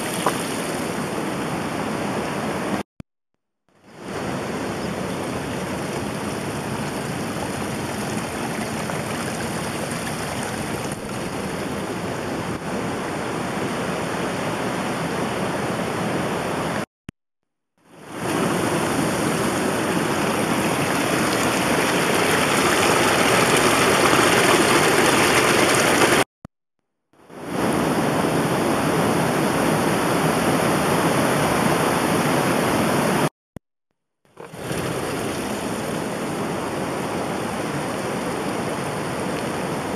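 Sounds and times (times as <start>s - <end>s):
rushing water: 0.0s - 2.8s, 3.9s - 16.8s, 17.9s - 26.3s, 34.4s - 39.9s.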